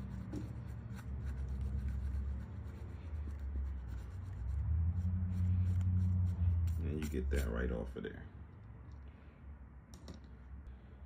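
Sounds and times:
eraser rubbing on sneaker: 0.0s - 7.6s
steady low hum: 0.0s - 11.0s.

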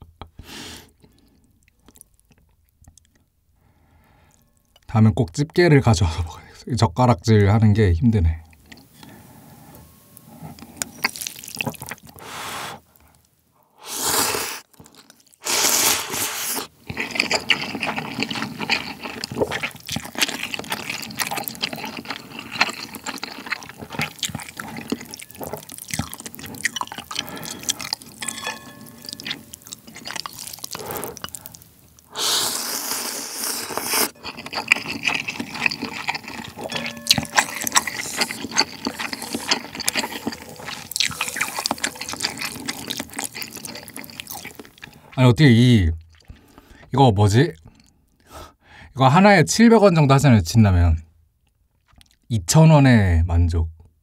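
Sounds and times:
wet chewing: 8.5s - 13.3s, 14.0s - 45.2s, 46.0s - 46.9s, 51.8s - 52.3s
slurping noodles: 13.8s - 45.2s.

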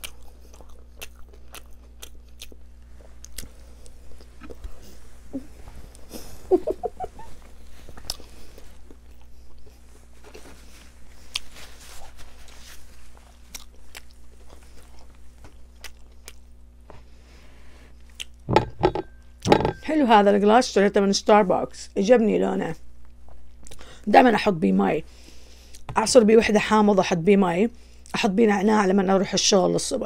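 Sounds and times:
person chewing: 0.0s - 6.3s, 7.4s - 16.6s, 17.9s - 18.5s, 23.2s - 23.9s
person humming: 5.3s - 5.6s.

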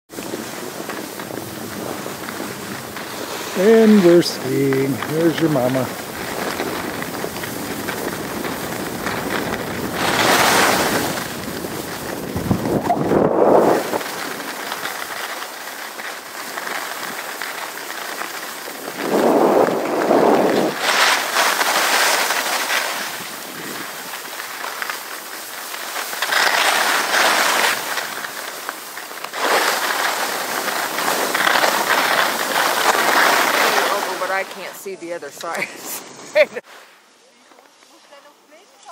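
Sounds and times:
skis scraping over snow: 0.1s - 38.9s
wind on microphone: 5.9s - 14.4s, 18.8s - 21.0s.

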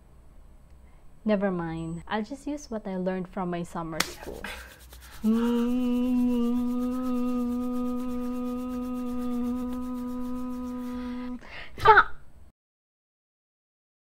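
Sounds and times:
person humming a long note: 5.2s - 11.5s.

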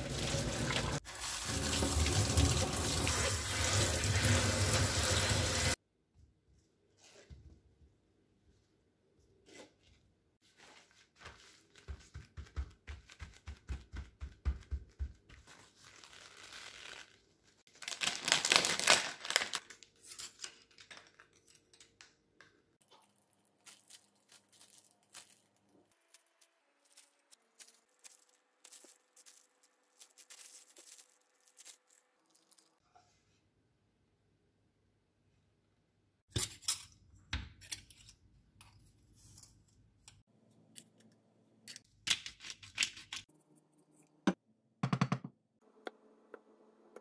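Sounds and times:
paper towel rustling and patting: 10.4s - 17.0s
packaging tearing and crinkling: 15.6s - 21.8s, 23.1s - 32.8s.

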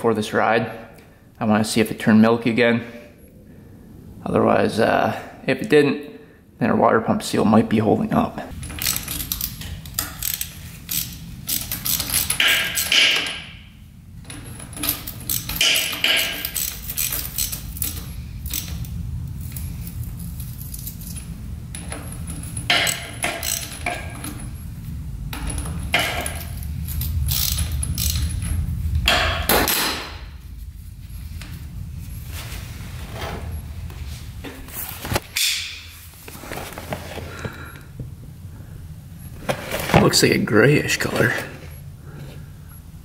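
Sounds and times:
steady low rumble: 0.0s - 43.0s
metal tools clinking and rattling: 8.5s - 13.6s, 14.2s - 29.4s
metal scraping: 8.5s - 37.3s.

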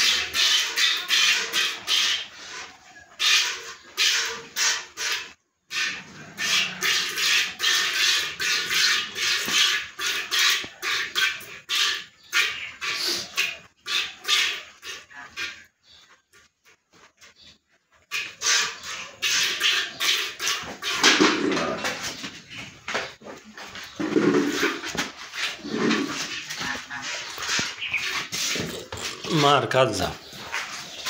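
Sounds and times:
milk spurts hitting metal pot: 18.4s - 21.8s.

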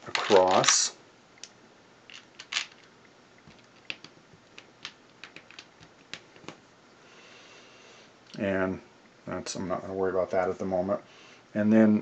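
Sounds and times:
plastic bricks clicking: 0.0s - 0.8s, 2.1s - 2.9s, 3.5s - 6.6s.

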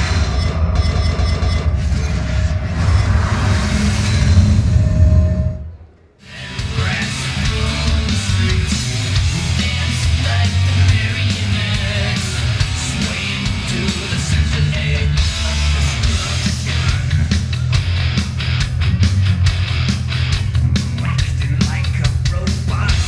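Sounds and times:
rock music with guitar and drums: 6.2s - 23.0s.

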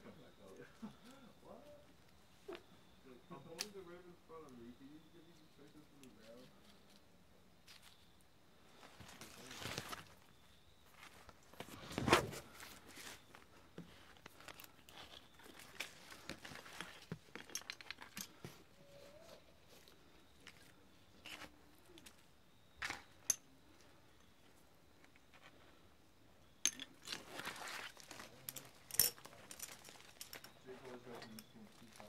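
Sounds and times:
rope rustling and scraping: 8.7s - 22.2s, 27.0s - 32.0s
carabiners and metal hardware clinking: 13.1s - 18.7s, 22.8s - 25.6s, 26.5s - 32.0s.

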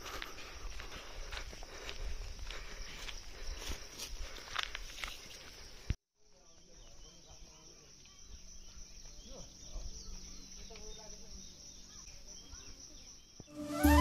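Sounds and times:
footsteps on stone trail: 0.0s - 6.0s
high insect buzz: 13.5s - 14.0s.

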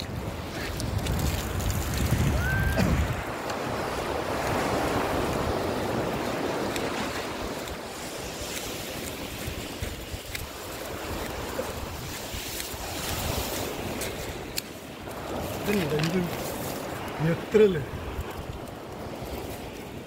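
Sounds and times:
sea surf washing up beach: 0.0s - 20.0s
wind buffeting microphone: 0.0s - 20.0s.

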